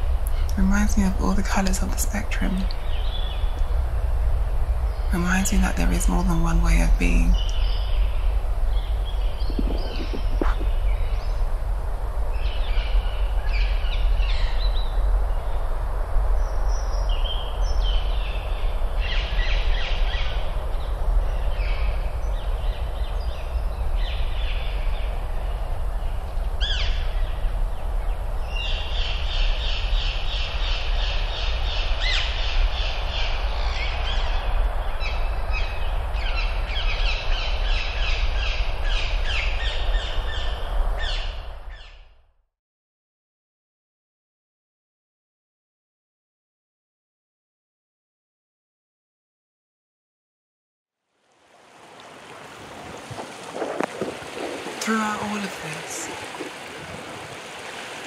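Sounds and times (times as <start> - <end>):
steady low rumble: 0.0 - 41.8
birds calling: 4.8 - 11.4, 52.1 - 58.0.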